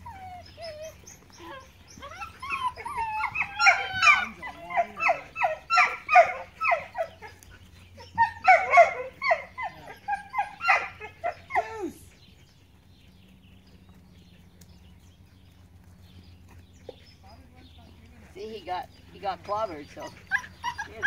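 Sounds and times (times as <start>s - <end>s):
puppy yapping: 0.0s - 7.4s, 8.0s - 11.7s.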